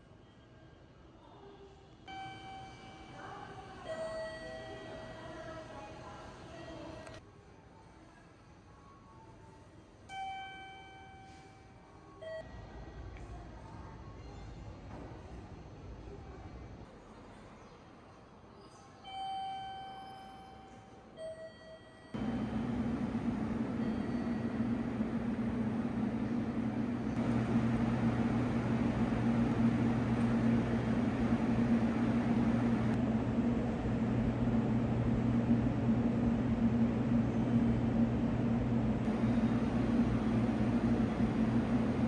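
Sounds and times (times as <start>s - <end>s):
short beeps: 2.1s - 3.2s
low mechanical hum with rushing: 22.2s - 42.0s.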